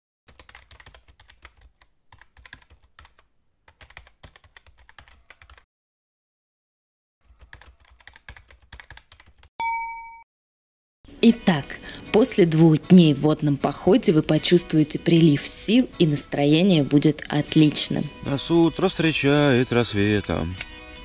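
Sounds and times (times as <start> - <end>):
keyboard typing: 0.3 - 5.6, 7.2 - 9.5
bell-like ding: 9.6 - 10.3.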